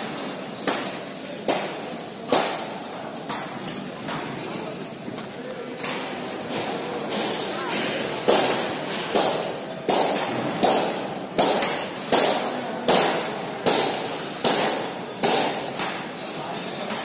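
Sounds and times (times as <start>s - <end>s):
hammer striking steel: 0.0s - 4.2s, 7.7s - 16.2s.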